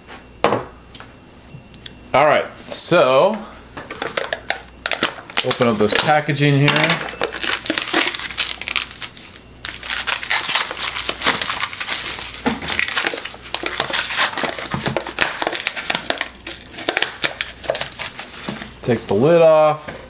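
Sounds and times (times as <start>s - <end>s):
plastic wrapping crinkling: 4.1s - 6.2s, 6.8s - 18.9s.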